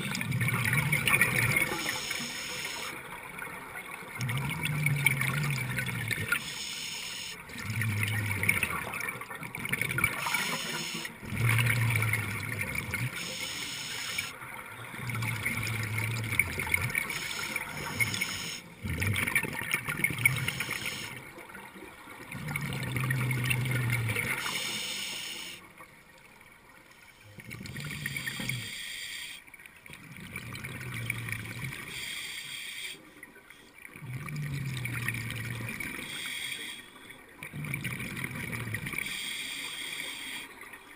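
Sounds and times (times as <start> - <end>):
exhaled bubbles gurgling: 0.0 - 25.8, 27.2 - 28.9, 29.8 - 32.2, 33.8 - 40.9
regulator inhalation hiss: 1.8 - 3.0, 6.3 - 7.4, 10.2 - 11.2, 13.2 - 14.3, 17.0 - 18.7, 24.4 - 25.6, 28.6 - 29.4, 31.9 - 33.0, 36.0 - 37.0, 39.0 - 40.6.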